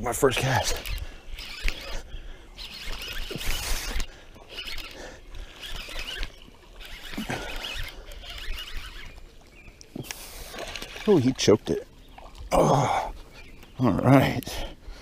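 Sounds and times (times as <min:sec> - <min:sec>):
fishing reel ratcheting: 0:00.3 - 0:09.2.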